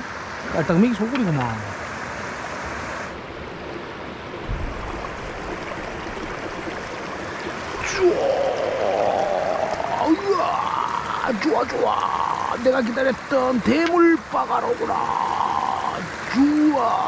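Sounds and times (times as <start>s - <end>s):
stream water flowing: 0.0s - 17.0s
low thump: 4.4s - 5.0s.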